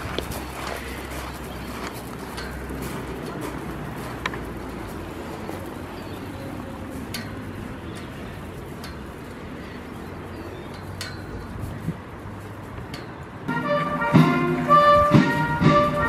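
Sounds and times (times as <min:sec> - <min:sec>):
footsteps on gravel: 0:00.0 - 0:10.1.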